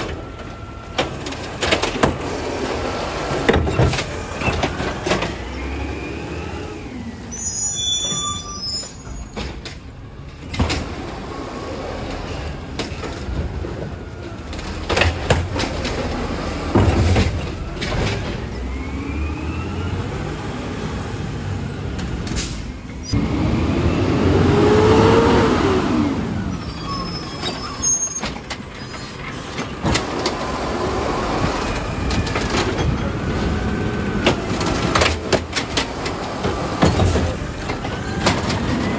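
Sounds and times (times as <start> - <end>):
engine revving: 23.1 - 26.8.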